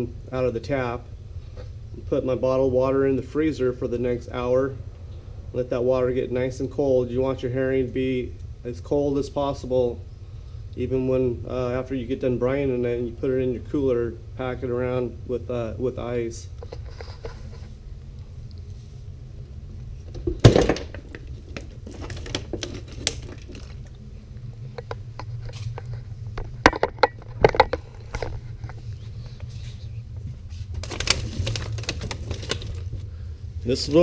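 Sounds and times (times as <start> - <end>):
steady low rumble: 0.0 - 34.0
knocks and clicks of handling: 24.7 - 28.8.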